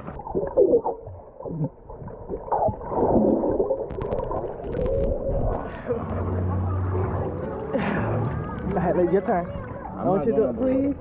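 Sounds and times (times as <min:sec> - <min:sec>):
underwater gurgling and bubbling: 0:00.0 - 0:06.0.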